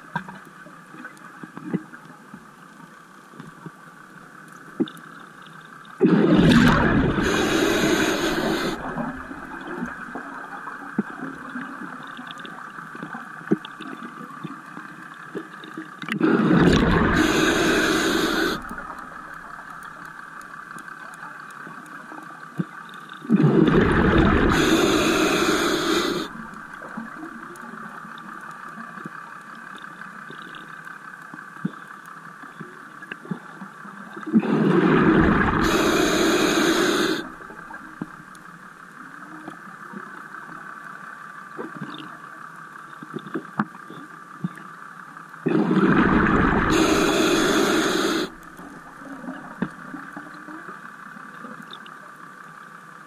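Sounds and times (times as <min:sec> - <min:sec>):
steady hiss: 0:00.2 - 0:53.0
diver's bubbles bubbling: 0:06.0 - 0:10.4, 0:16.2 - 0:19.8, 0:23.3 - 0:27.0, 0:34.4 - 0:38.2, 0:45.5 - 0:49.0.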